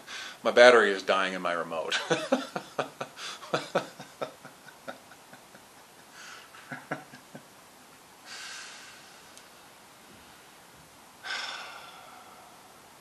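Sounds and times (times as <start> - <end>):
breathy nasal exhales: 0.0 - 0.4, 8.2 - 10.5, 11.2 - 13.0
man laughing softly: 1.9 - 7.5.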